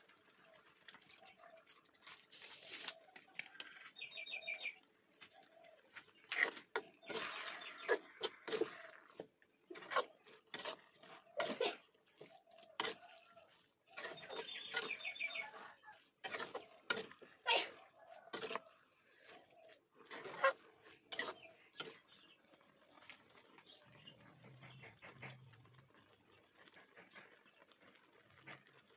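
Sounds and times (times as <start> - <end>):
metal spatula scraping a wok: 6.2 - 13.2, 14.0 - 22.2.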